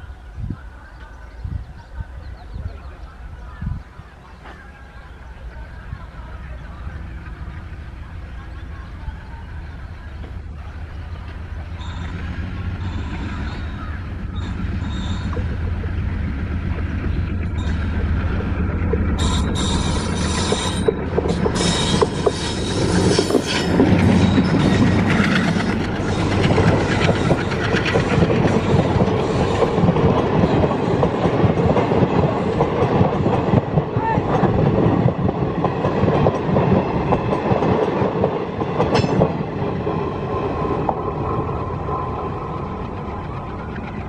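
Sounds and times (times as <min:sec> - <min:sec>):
diesel locomotive engine: 0:00.0 - 0:44.0
train wheels clattering: 0:11.1 - 0:39.9.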